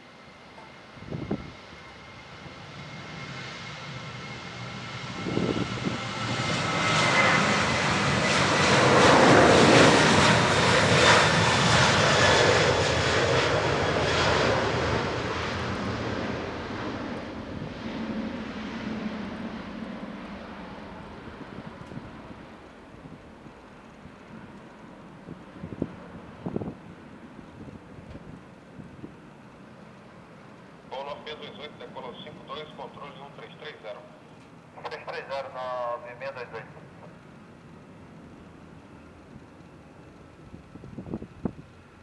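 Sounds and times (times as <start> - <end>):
high fan whine: 0.0 - 2.0, 5.2 - 6.2, 16.4 - 31.9, 35.6 - 42.0
jet engines at takeoff: 0.0 - 42.0.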